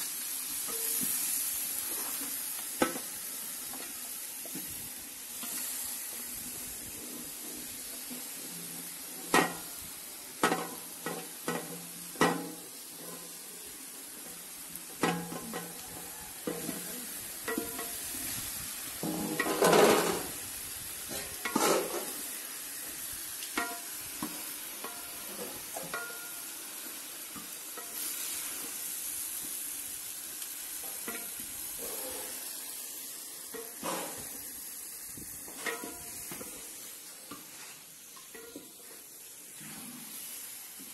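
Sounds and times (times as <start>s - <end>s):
spatula scraping metal pot: 21.1s - 22.1s.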